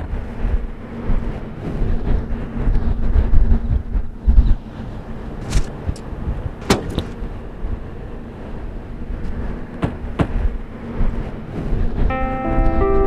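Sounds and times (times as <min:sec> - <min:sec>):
sharp clicks and knocks: 0:05.5 - 0:07.2.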